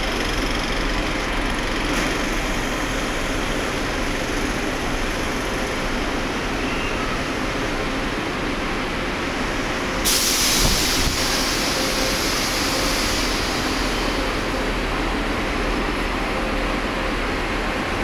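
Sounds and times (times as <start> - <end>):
bus terminal rumble: 0.0 - 18.0
bus air brake hiss: 10.0 - 14.6.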